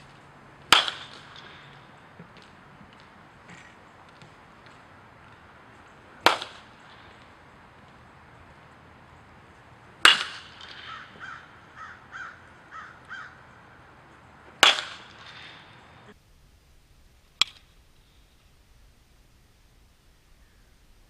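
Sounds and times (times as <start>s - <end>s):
bird calling: 0.0s - 16.2s, 17.2s - 21.0s
metal bat hitting ball: 0.6s - 13.6s, 14.2s - 16.1s, 17.4s - 17.7s.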